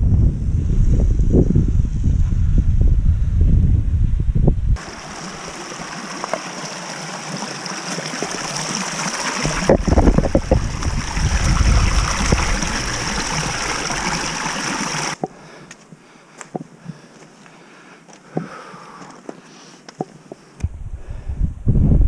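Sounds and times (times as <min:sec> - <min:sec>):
low rumble: 0:00.0 - 0:04.8
stream splashing over rocks: 0:04.8 - 0:15.2.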